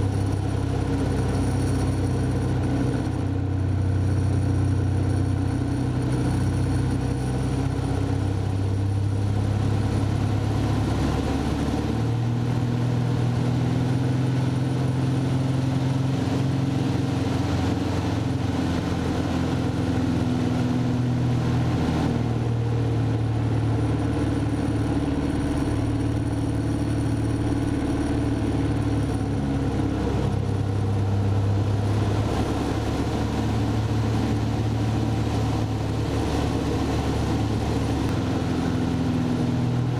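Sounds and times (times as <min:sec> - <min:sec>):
aircraft engine droning in cockpit: 0:00.0 - 0:39.9.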